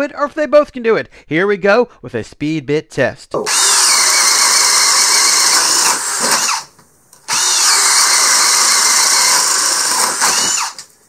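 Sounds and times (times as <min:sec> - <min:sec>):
cordless drill whining: 0:03.4 - 0:06.7, 0:07.3 - 0:10.9
drill bit cutting wood: 0:03.4 - 0:06.7, 0:07.3 - 0:10.9.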